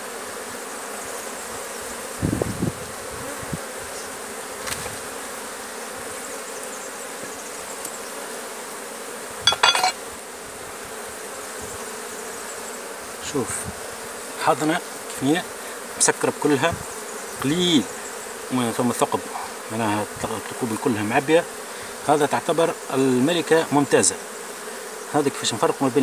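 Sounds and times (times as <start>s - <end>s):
bees humming: 0.0s - 26.0s
wooden hive frames clattering: 9.5s - 10.1s.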